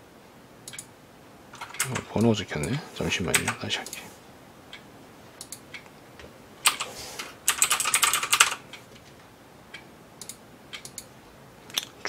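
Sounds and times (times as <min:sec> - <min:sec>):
typing on a computer keyboard: 0:01.6 - 0:02.0, 0:03.3 - 0:03.6, 0:06.7 - 0:06.9, 0:07.5 - 0:08.6.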